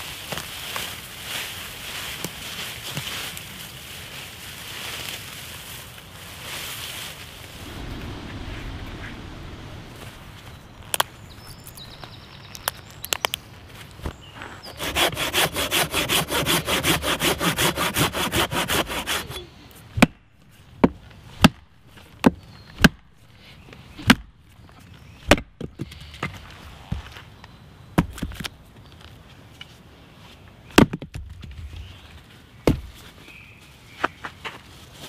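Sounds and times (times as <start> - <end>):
saw cutting through log: 14.6 - 19.4.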